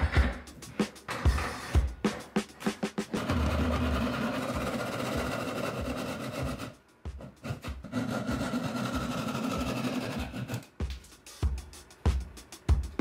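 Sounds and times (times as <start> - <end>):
electric saw cutting wood: 3.2 - 6.6.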